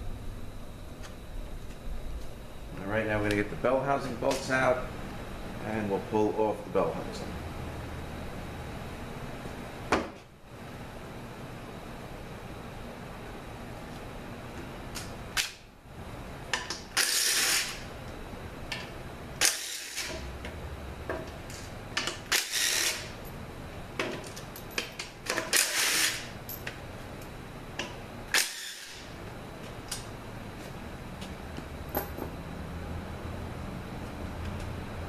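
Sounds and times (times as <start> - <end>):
cordless impact driver bursts: 17.0 - 17.8, 19.4 - 20.1, 22.3 - 23.1, 25.5 - 26.3, 28.4 - 29.0.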